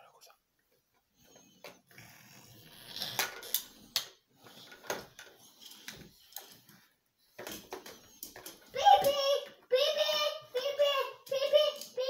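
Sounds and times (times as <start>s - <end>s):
plastic toys clattering: 2.6s - 12.0s.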